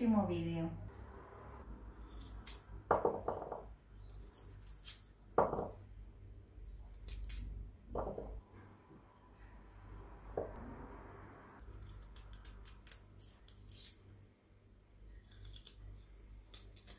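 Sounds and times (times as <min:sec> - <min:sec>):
knife cutting garlic: 0:02.0 - 0:03.4, 0:06.9 - 0:07.5, 0:11.6 - 0:14.1, 0:15.3 - 0:16.9.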